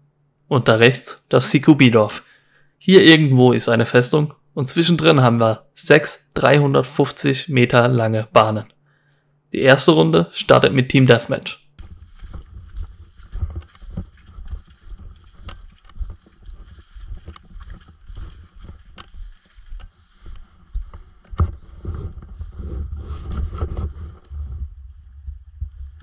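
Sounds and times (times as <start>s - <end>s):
footsteps crunching dry leaves: 11.7s - 22.5s
camera knocking and rumbling: 11.7s - 26.0s.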